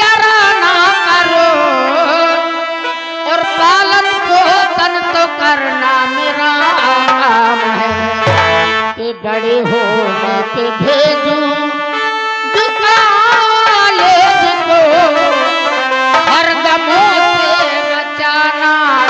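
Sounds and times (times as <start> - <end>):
ornamented melody line: 7.6 - 9.8
low drum stroke: 7.9 - 9.0.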